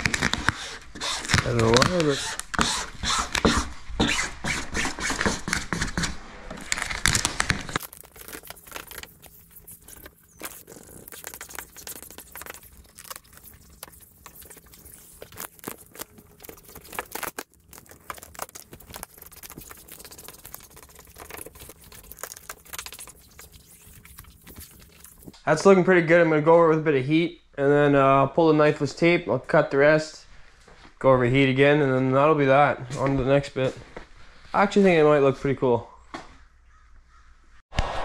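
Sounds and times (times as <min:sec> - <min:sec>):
squeegee scraping vinyl film: 0:00.0 - 0:25.4.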